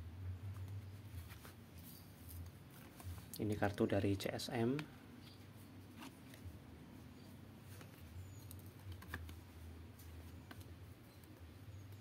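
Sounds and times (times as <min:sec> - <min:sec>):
low steady hum: 0:00.0 - 0:12.0
clicks and taps handling cards: 0:07.7 - 0:09.5.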